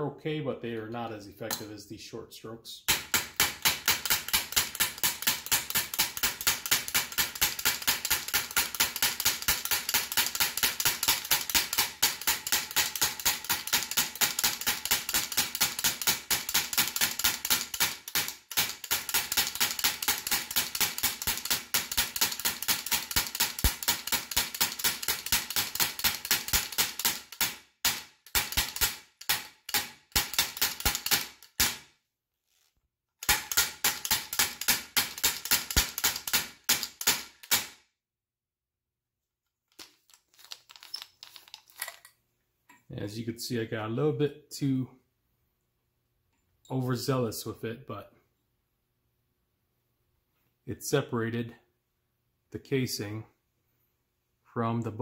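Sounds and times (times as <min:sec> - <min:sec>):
plastic hammer striking wooden block: 0:02.9 - 0:31.9, 0:33.2 - 0:37.8.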